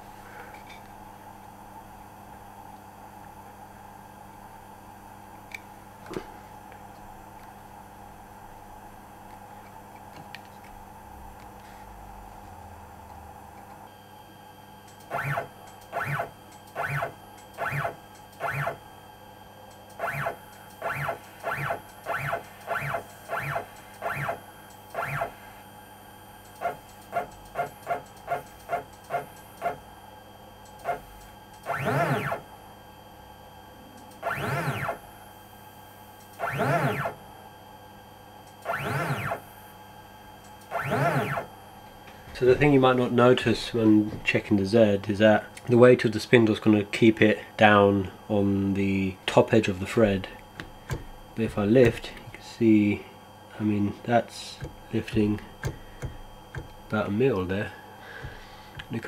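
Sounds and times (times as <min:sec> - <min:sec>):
stepper motor whines: 0:13.9 - 0:30.0, 0:30.6 - 0:32.6, 0:34.0 - 0:37.3, 0:38.5 - 0:39.7, 0:40.4 - 0:41.6, 0:49.9 - 0:59.0.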